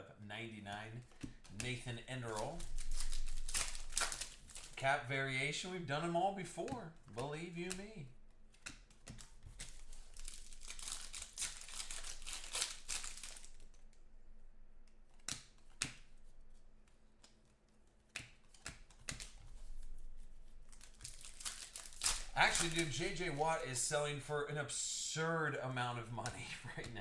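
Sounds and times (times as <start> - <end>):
cards being handled: 0.4 - 13.9, 14.8 - 24.4, 25.9 - 27.0
foil wrapper crinkling and tearing: 1.6 - 4.8, 9.6 - 13.8, 20.6 - 24.3.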